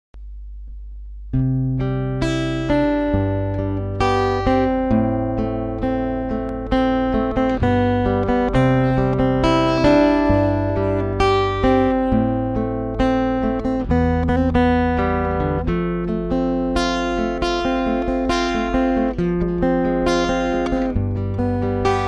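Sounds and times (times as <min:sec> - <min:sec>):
low hum: 0:00.1 - 0:01.4
acoustic guitar picked notes: 0:00.2 - 0:22.0.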